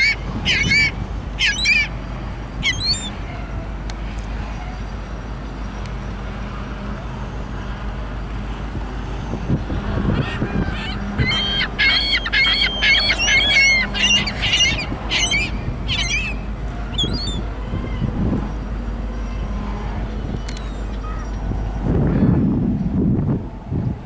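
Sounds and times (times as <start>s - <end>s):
freight train rumble: 0.0s - 24.0s
geese honking: 9.8s - 17.4s.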